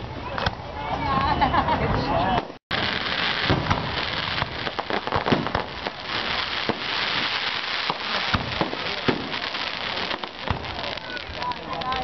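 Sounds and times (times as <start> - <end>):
crackling hiss of fireworks: 2.4 - 12.0
firework shells bursting: 2.7 - 12.0.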